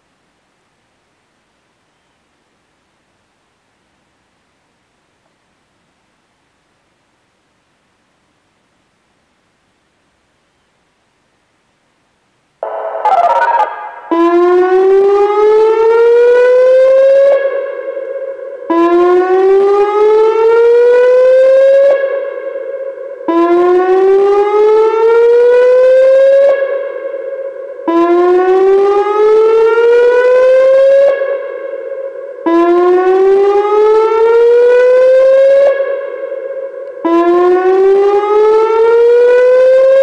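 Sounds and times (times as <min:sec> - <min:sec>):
warning siren whoop tone: 0:12.6 - 0:40.0.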